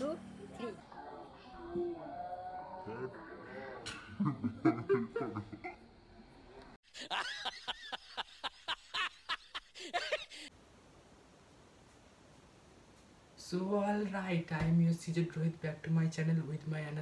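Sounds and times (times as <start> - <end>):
repeated bright laughs: 3.9 - 5.9, 6.9 - 10.5
person laughing and snickering: 4.1 - 5.8.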